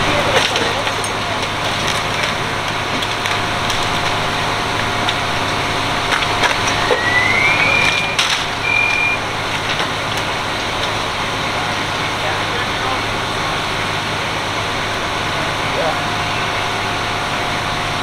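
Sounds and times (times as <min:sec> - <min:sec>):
debris knocking and cracking: 0:00.0 - 0:07.0, 0:09.4 - 0:11.2
equipment running noise: 0:00.0 - 0:18.0
electronic beeps: 0:06.7 - 0:09.2.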